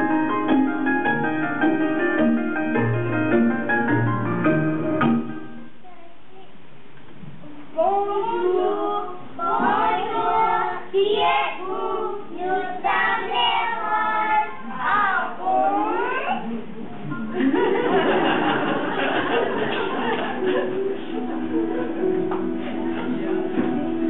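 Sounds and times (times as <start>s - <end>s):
children singing together: 7.8s - 16.4s.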